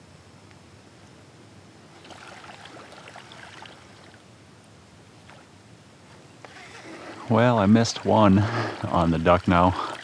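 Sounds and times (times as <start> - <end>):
water lapping and trickling: 1.9 - 4.3, 5.2 - 5.6, 6.4 - 10.0.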